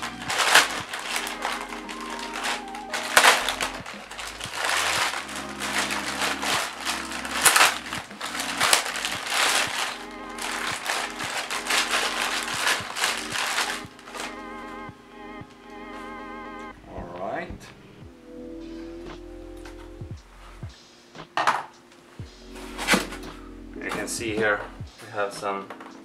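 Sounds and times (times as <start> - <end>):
plastic bag crinkling: 0.0 - 14.4.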